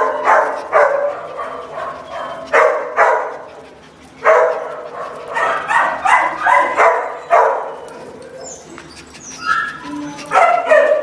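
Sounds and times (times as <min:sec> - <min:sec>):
dog barking: 0:00.0 - 0:03.4, 0:04.2 - 0:07.8, 0:09.5 - 0:11.0
dog yipping: 0:00.0 - 0:11.0.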